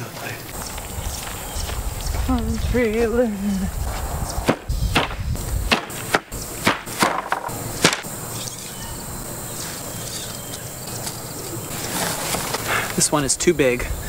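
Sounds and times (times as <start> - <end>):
faint outdoor hiss: 0.0 - 14.0
wooden pallets knocking and clattering: 4.5 - 8.1.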